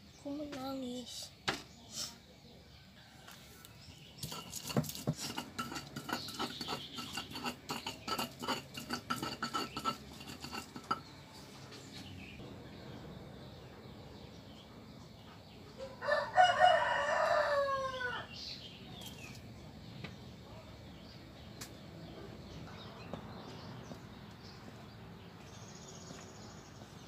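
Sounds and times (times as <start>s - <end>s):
pestle pounding in stone mortar: 4.2s - 11.1s
rooster crowing: 15.8s - 18.4s.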